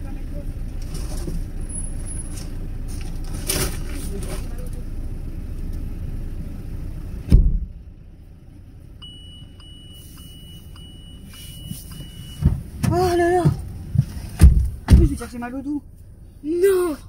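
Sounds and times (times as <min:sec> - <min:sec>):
car engine running: 0:00.0 - 0:17.0
loud thumps: 0:07.3 - 0:07.7, 0:12.3 - 0:15.2
faint steady high tone: 0:09.0 - 0:12.4.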